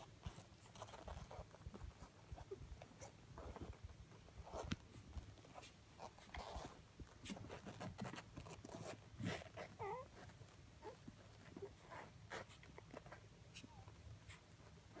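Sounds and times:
puppies suckling: 4.5 - 15.0.

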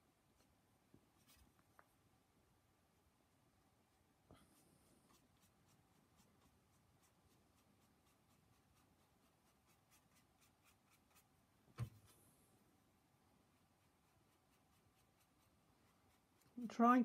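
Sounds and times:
brush scratching on paper: 4.4 - 12.2, 13.4 - 17.0.

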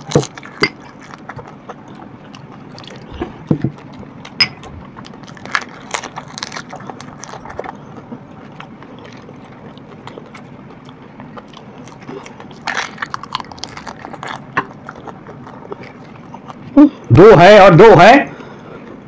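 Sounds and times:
crisp shells crunching when bitten: 0.0 - 1.8, 5.0 - 10.5, 11.3 - 16.6
chewing: 0.0 - 17.1.

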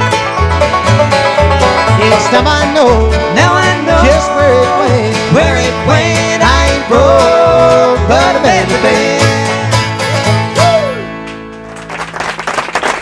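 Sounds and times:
bluegrass band playing: 0.0 - 13.0
applause: 11.6 - 13.0.

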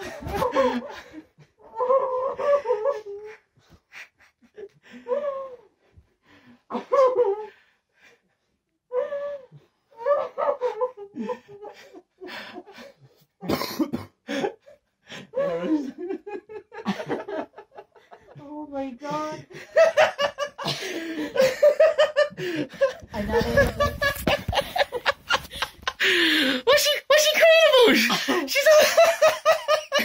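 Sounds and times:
person sobbing: 0.0 - 3.4, 9.5 - 16.2, 18.2 - 30.0
tearful laughter: 0.0 - 5.3, 19.4 - 26.7, 27.7 - 30.0
gasping breaths: 25.6 - 26.7.

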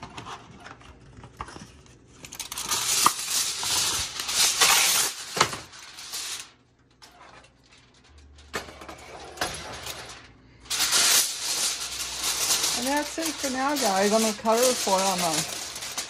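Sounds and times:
aluminum foil crinkling: 0.0 - 16.0.

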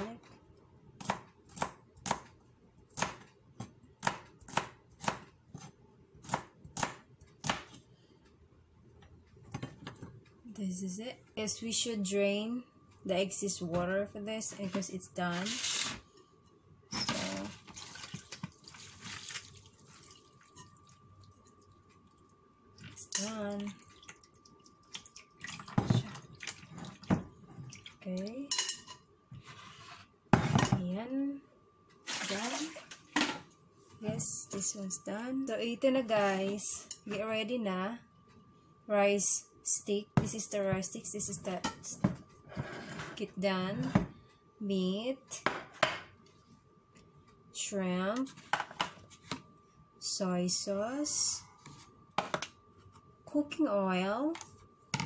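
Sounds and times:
water draining and dripping: 17.7 - 28.1.

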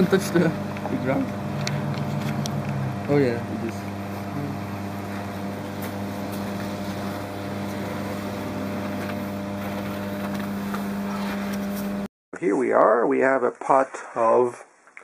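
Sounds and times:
steady low hum: 0.0 - 12.1
constant hiss: 12.4 - 15.0.

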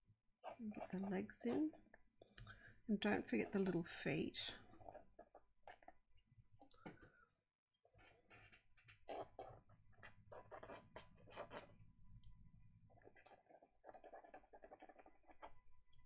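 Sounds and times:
pen scratching on paper: 9.0 - 11.8, 13.0 - 15.6.

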